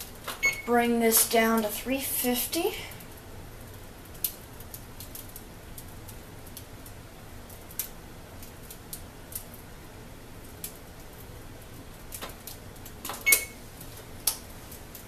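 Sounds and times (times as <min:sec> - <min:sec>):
oven keypad clicks: 0:13.0 - 0:13.6.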